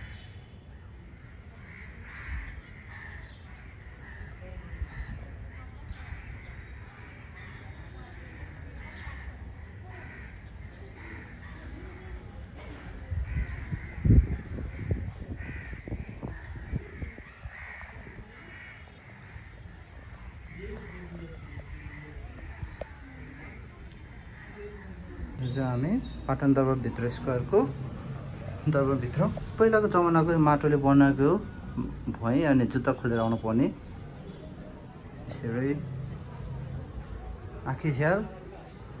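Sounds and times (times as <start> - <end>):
crows cawing: 1.2 - 26.1.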